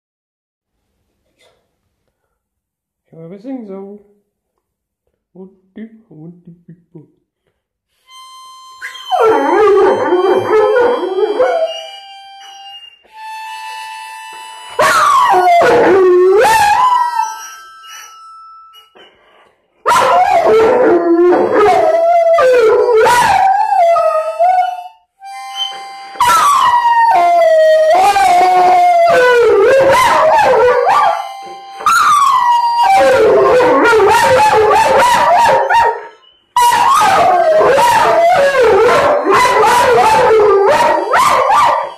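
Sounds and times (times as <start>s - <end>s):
dog howling: 9.0s - 12.0s, 14.8s - 17.5s, 19.9s - 24.9s, 26.2s - 31.2s, 31.8s - 41.9s.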